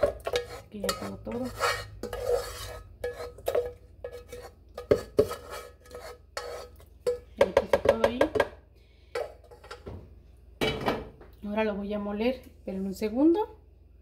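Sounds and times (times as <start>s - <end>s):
spatula scraping a saucepan: 0.0s - 7.4s.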